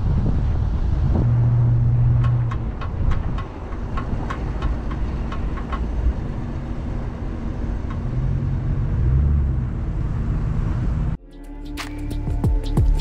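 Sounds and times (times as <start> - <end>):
tyre and wind noise: 0.0 - 9.6
low engine rumble: 0.0 - 13.0.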